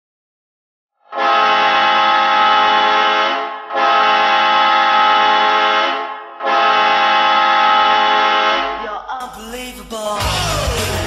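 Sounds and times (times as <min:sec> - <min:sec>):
goal horn blasts: 0:01.1 - 0:08.9.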